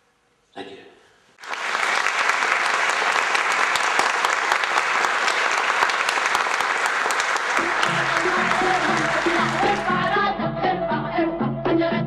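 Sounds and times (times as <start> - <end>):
audience applauding: 1.4 - 10.2.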